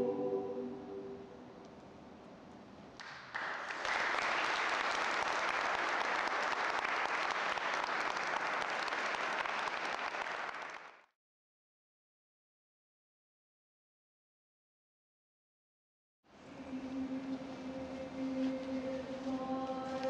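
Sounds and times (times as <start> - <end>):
choir singing chord: 0.0 - 1.5
audience applauding: 3.0 - 11.1.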